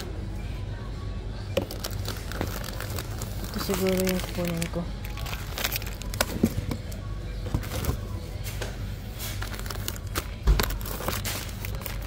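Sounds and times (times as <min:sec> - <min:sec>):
low background hum: 0:00.0 - 0:12.0
plastic packs rustling and knocking: 0:01.6 - 0:06.9, 0:09.3 - 0:12.0.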